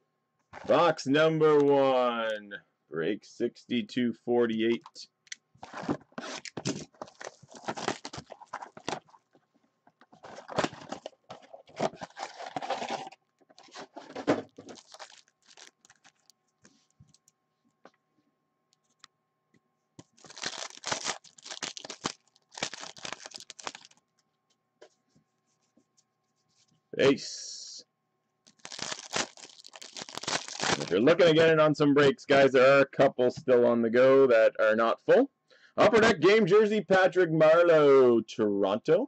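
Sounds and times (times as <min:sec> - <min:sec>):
foil packs tearing and crinkling: 0:05.6 - 0:09.2, 0:10.3 - 0:13.2, 0:13.9 - 0:16.3, 0:20.1 - 0:24.0, 0:28.5 - 0:31.0
cardboard box tearing: 0:05.7 - 0:09.0.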